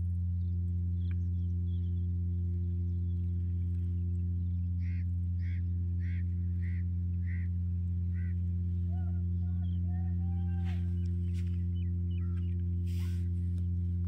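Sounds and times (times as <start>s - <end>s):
low mechanical hum: 0.0s - 14.0s
soft low tones: 0.0s - 14.0s
bird calling: 2.8s - 13.3s.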